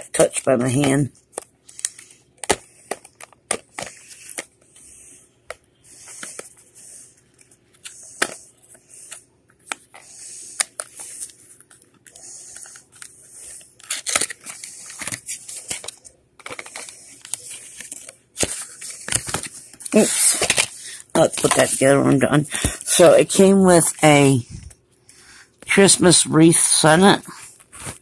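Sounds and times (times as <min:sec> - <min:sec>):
packaging clicks and taps: 0:00.8 - 0:04.5, 0:13.8 - 0:20.7
packaging rustling and tearing: 0:09.0 - 0:22.8.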